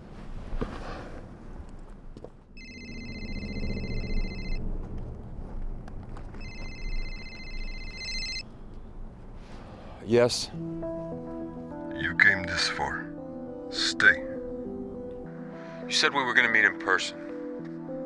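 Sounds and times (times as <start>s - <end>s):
low steady rumble: 0.0s - 11.2s
mobile phone ringing: 2.6s - 4.7s, 6.4s - 8.5s.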